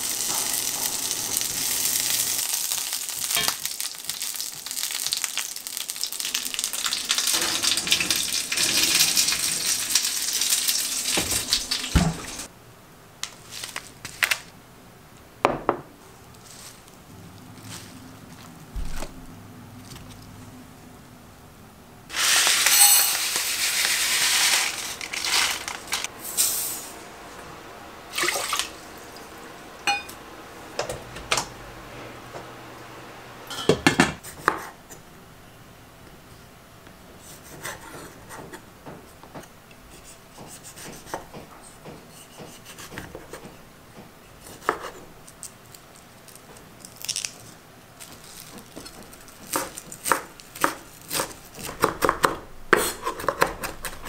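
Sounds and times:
pots and utensils clinking: 3.2s - 3.7s, 22.1s - 26.7s, 29.8s - 30.2s, 33.4s - 34.2s
knife chopping on cutting board: 40.3s - 43.5s.

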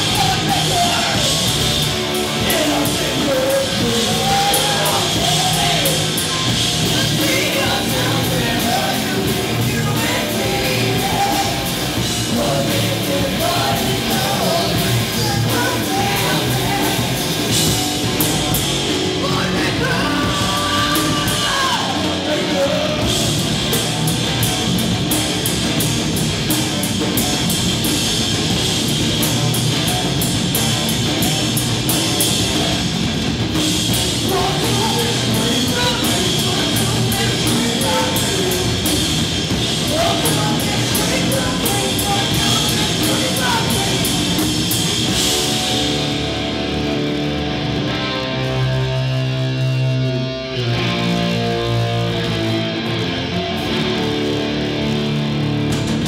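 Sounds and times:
woman and man singing: 0.0s - 1.4s, 2.4s - 6.2s, 6.8s - 17.2s, 19.2s - 23.2s, 34.2s - 39.1s, 39.9s - 44.4s
drum kit with cymbals: 0.0s - 47.4s, 53.3s - 56.0s
electric bass guitar: 0.0s - 56.0s.

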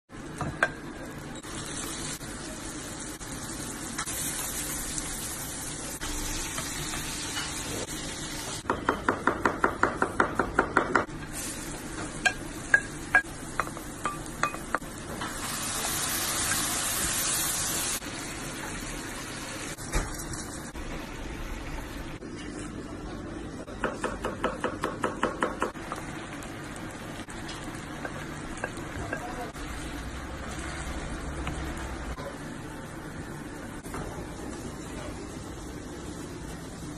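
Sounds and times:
food sizzling in frying pan: 0.1s - 8.7s, 11.1s - 22.2s, 25.8s - 32.2s.

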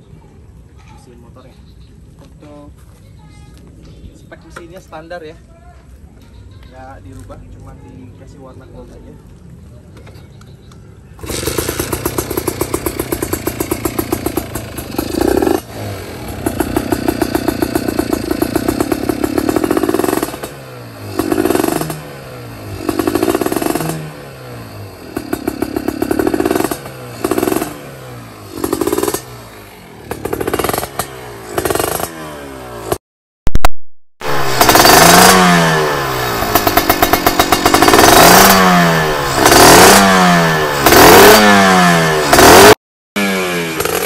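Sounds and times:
motorcycle engine revving: 11.2s - 33.0s, 34.2s - 44.0s.

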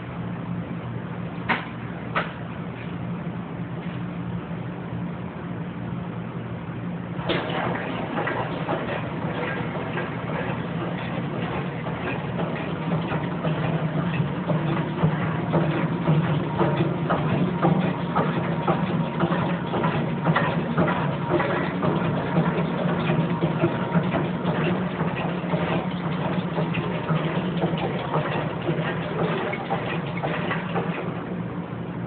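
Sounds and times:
motor hum: 6.7s - 32.0s
rapid mechanical clicks: 7.2s - 31.3s.

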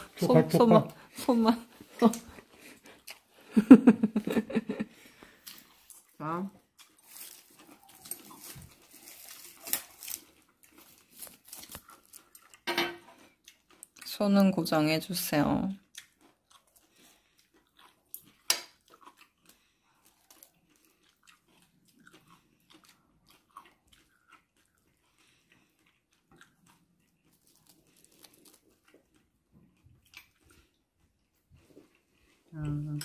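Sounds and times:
crisp seaweed crinkling: 6.8s - 12.6s, 27.3s - 28.9s.

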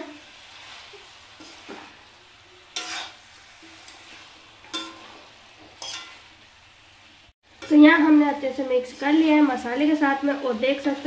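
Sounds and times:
faint sizzle: 0.0s - 11.0s
spoon clinking on metal pan: 4.7s - 5.0s, 5.8s - 6.2s.

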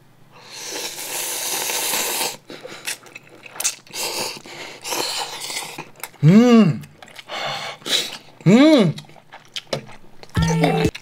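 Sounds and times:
person slurping noodles: 0.4s - 5.9s
wet chewing: 0.8s - 6.2s, 6.8s - 11.0s.

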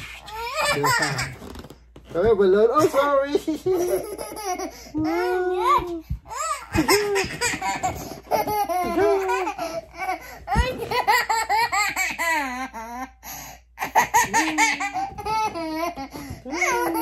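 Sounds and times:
little girl laughing and squealing: 0.0s - 1.4s, 3.9s - 9.8s, 14.0s - 17.0s.

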